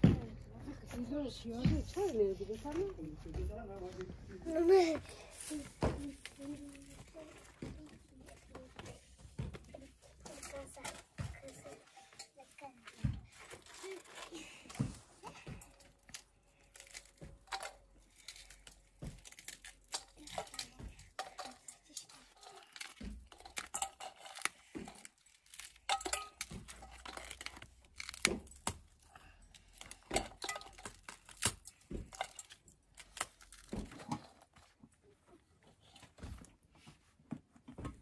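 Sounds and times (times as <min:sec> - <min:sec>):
bread tearing crackles: 0:15.7 - 0:20.8, 0:22.3 - 0:34.6.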